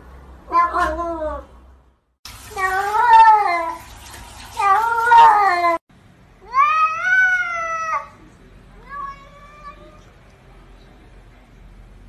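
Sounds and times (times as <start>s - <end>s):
cat meowing: 0.5s - 1.5s, 8.8s - 10.1s.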